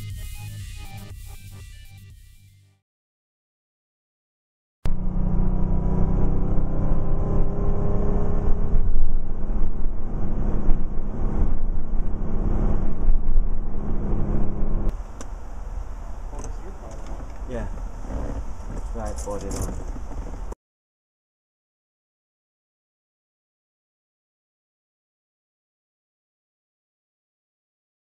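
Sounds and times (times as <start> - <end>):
car engine drone: 4.9 - 20.6
road noise: 4.9 - 20.6.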